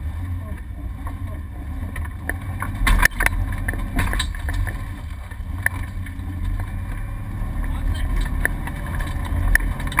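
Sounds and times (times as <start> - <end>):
vehicle engine rumbling: 0.0 - 10.0
loud clatter: 1.9 - 6.7
knocks and rattles: 1.9 - 6.8, 7.6 - 10.0.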